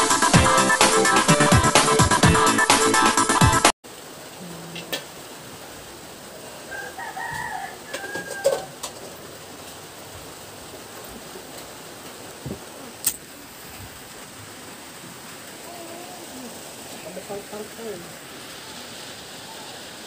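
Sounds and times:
steady background hiss: 3.9s - 20.0s
rooster crowing: 6.6s - 8.9s.

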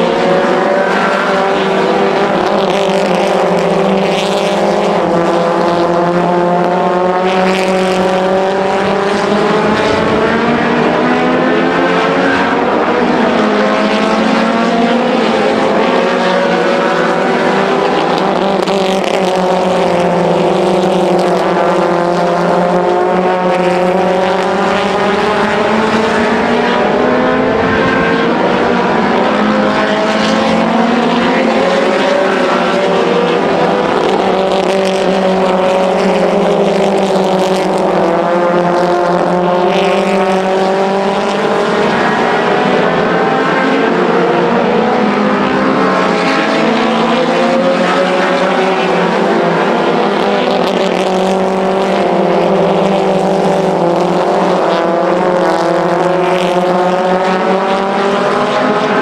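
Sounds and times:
race car engines: 0.0s - 59.0s.

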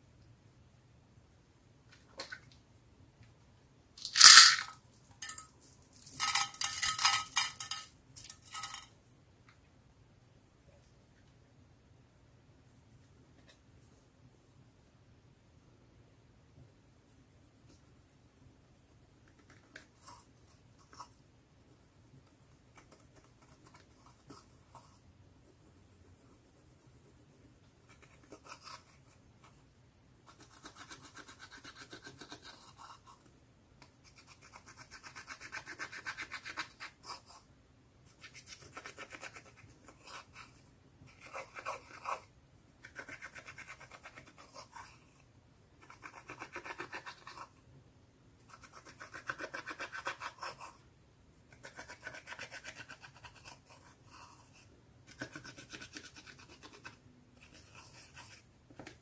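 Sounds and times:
fast scratching strokes: 4.0s - 4.8s.

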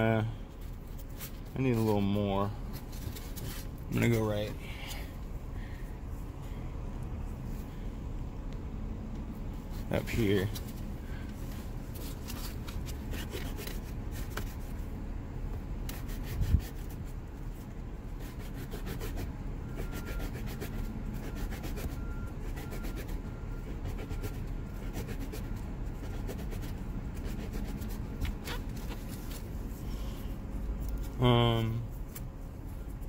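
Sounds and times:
sandpaper rubbing on plastic: 11.9s - 14.8s, 15.8s - 17.2s, 18.1s - 29.5s.

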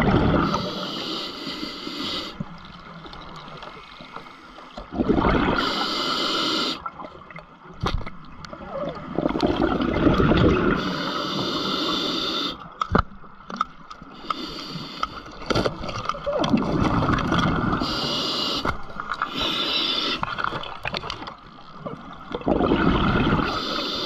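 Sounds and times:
exhaled bubbles gurgling: 0.0s - 1.1s, 4.8s - 7.4s, 8.5s - 12.5s, 15.7s - 24.0s
regulator inhale hiss: 0.5s - 2.7s, 5.6s - 6.9s, 10.7s - 12.7s, 14.1s - 15.5s, 17.7s - 20.4s, 23.4s - 24.0s.

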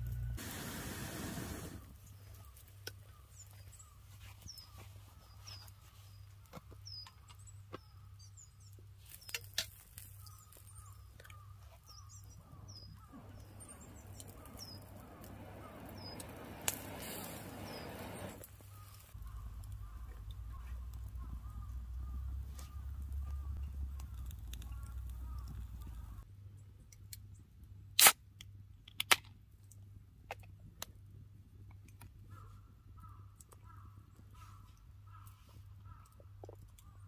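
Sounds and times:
hiss: 0.4s - 1.9s, 13.2s - 18.4s
small birds chirping: 0.6s - 26.3s.

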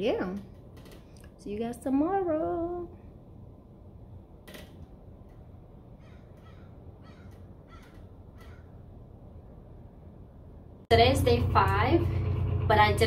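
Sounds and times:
low room hum: 0.0s - 13.0s
faint bird calls: 6.0s - 8.8s.

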